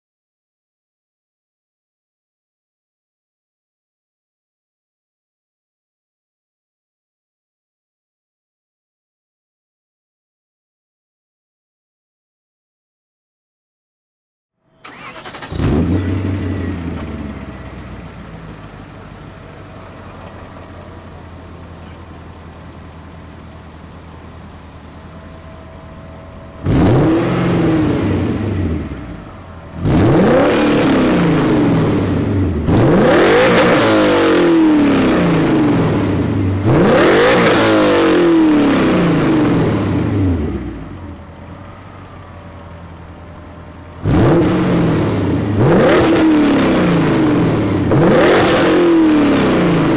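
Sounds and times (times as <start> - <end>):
car engine idling and revving: 14.7 - 49.9.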